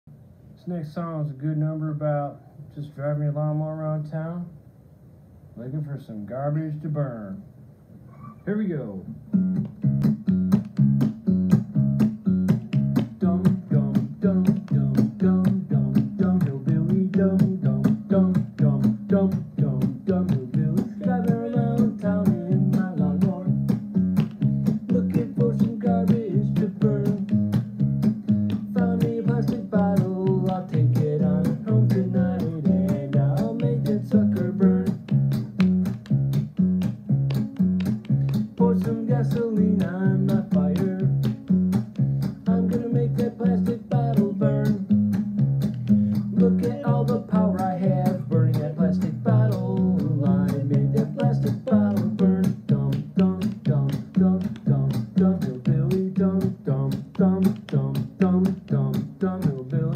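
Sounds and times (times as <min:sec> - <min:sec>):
bass line: 0:09.0 - 0:59.9
acoustic guitar strumming: 0:09.1 - 0:59.9.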